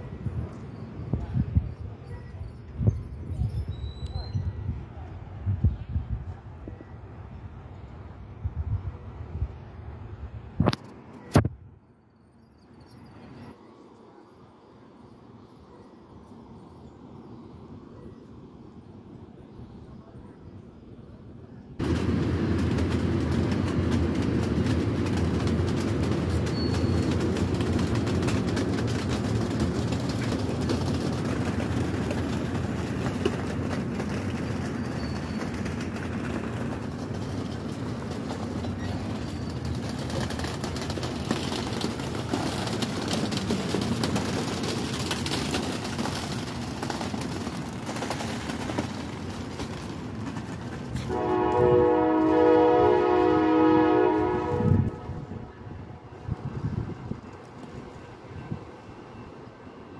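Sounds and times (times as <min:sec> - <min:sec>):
train cars rumbling past: 0:00.0 - 0:59.9
multi-chime train horn: 0:51.1 - 0:55.3.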